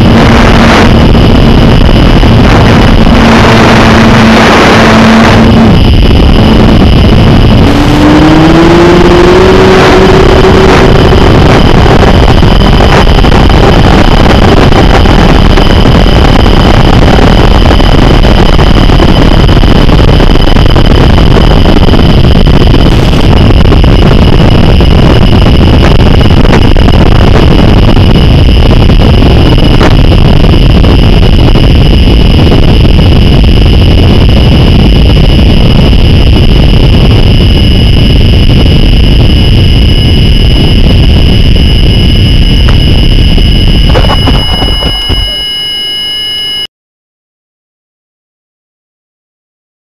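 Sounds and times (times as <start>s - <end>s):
loud steady rushing noise: 0.0s - 46.7s
rising whine: 0.0s - 46.7s
faint high tones: 41.9s - 46.7s.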